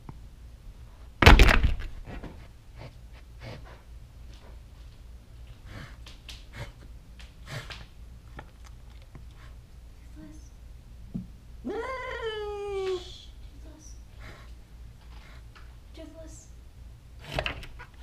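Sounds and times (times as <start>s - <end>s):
thump on microphone: 1.2s - 2.4s.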